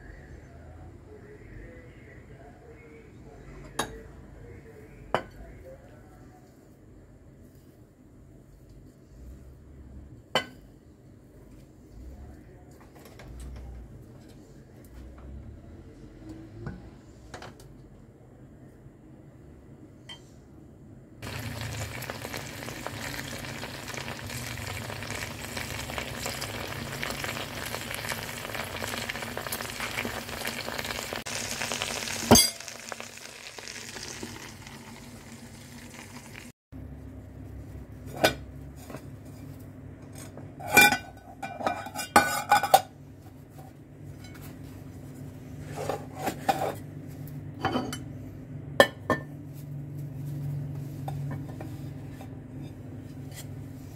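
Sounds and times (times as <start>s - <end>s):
rice sizzling in a pot: 21.2s - 36.5s
dishes clinking and knocking: 40.6s - 42.9s.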